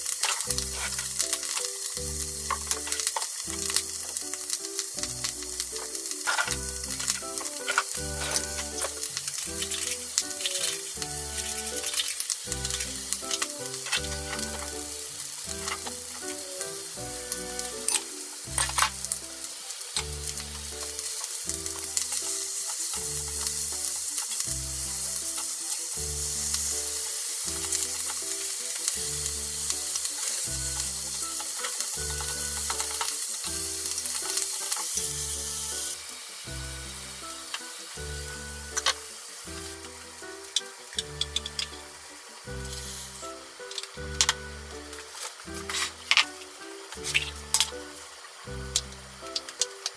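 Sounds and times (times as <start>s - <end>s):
sharp utensil clicks: 0.0s - 14.8s, 29.7s - 35.1s, 40.5s - 41.8s
background music with steady beat: 0.0s - 49.9s
greens sizzling in oil: 0.0s - 49.9s.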